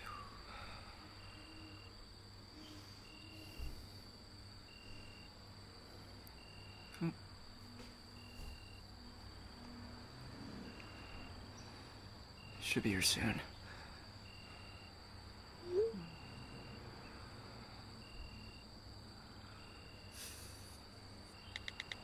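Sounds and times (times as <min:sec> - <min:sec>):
crickets chirping: 0:00.0 - 0:22.0
sharp click: 0:21.5 - 0:22.0.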